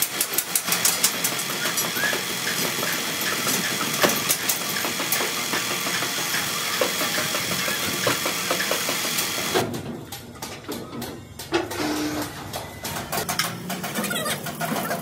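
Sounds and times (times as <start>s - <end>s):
machine running: 0.0s - 9.6s.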